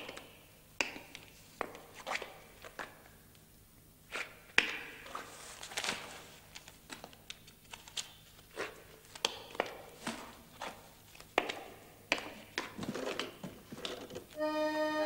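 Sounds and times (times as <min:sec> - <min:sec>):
paper rustling: 0:05.0 - 0:11.4.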